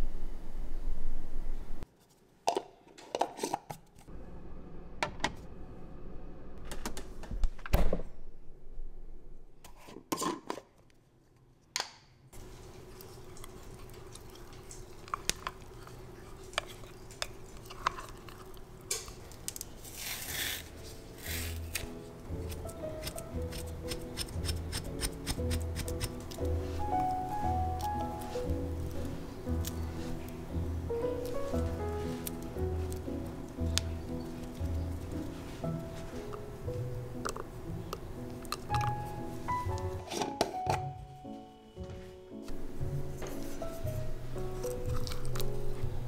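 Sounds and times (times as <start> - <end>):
banana being peeled: 12.4 - 26.5, 44.5 - 46.0.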